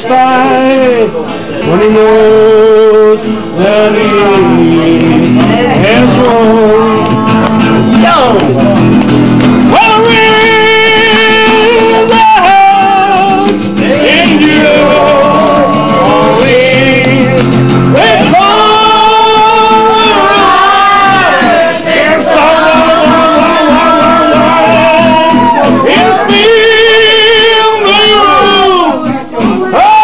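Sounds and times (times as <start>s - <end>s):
folk singing in long notes: 9.8s - 28.8s.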